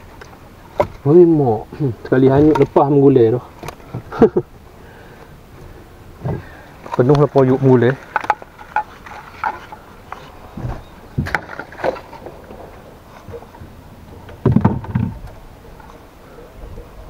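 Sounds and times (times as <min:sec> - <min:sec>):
fishing tackle knocking and rattling: 0:06.2 - 0:10.3.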